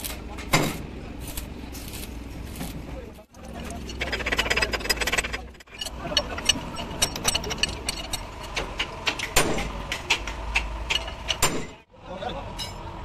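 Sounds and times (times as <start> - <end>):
metal clinks: 3.4 - 9.3
ratchet wrench clicking: 3.4 - 9.4.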